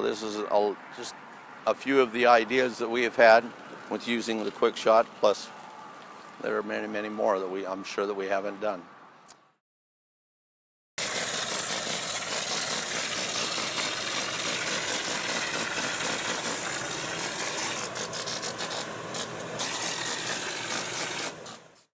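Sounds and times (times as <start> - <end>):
air compressor running: 11.0 - 21.8
hopper sprayer hissing: 11.0 - 21.8.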